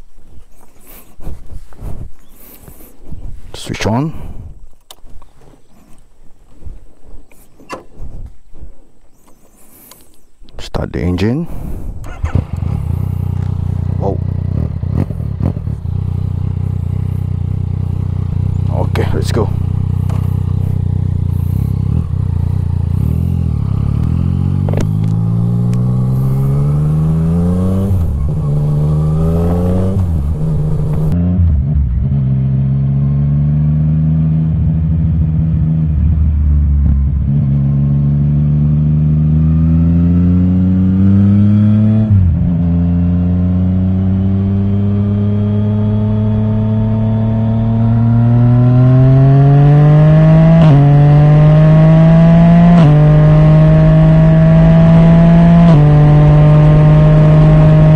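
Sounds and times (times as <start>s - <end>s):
motorcycle engine accelerating through gears: 11.6s - 57.9s.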